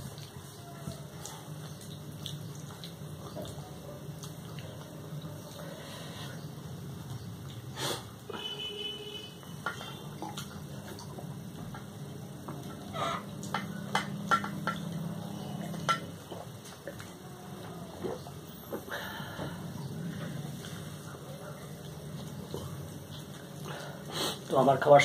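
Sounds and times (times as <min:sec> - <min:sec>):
chewing: 0:00.0 - 0:08.0, 0:19.7 - 0:24.5.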